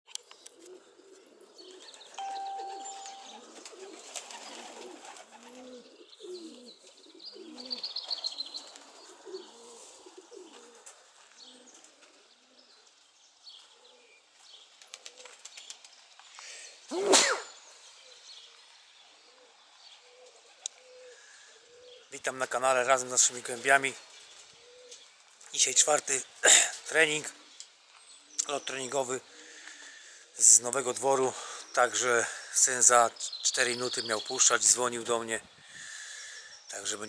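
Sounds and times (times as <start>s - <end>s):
small birds chirping: 0.1s - 37.0s
pigeons cooing: 0.5s - 2.2s, 3.3s - 12.9s, 19.2s - 22.1s, 24.4s - 25.0s
short steady tone: 2.2s - 3.4s.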